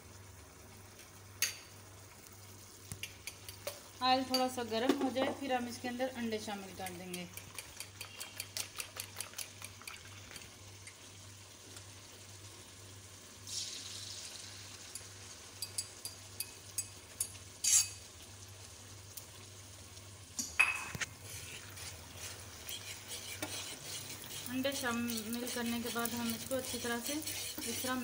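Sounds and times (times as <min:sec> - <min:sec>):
egg sizzling in hot oil: 0:00.0 - 0:28.0
fork stirring eggs: 0:03.0 - 0:03.8, 0:06.8 - 0:10.5, 0:21.0 - 0:28.0.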